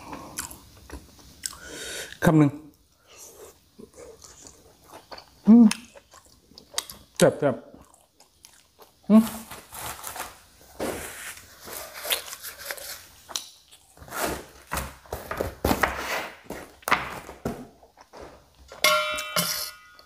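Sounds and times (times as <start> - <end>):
man chewing: 0.0 - 2.2, 3.0 - 9.1, 11.8 - 14.1
breathing: 1.5 - 2.2.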